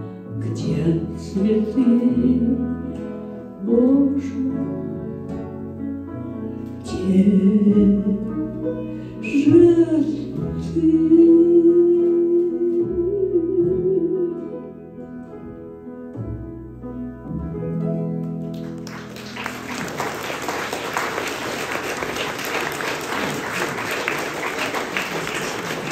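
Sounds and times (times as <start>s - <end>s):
audience applause: 18.5s - 25.9s.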